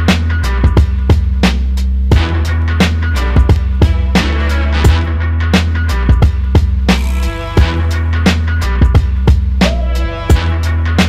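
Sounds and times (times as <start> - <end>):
steady drum beat: 6.1 - 10.7
heavy sustained bass: 6.8 - 8.3.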